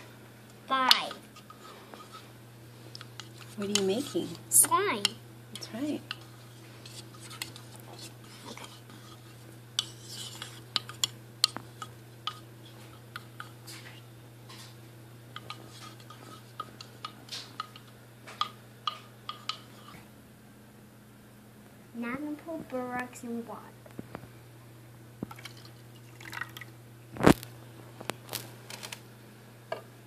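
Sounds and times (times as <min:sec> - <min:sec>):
plastic spoon stirring slime: 0:02.9 - 0:14.7, 0:15.4 - 0:20.0.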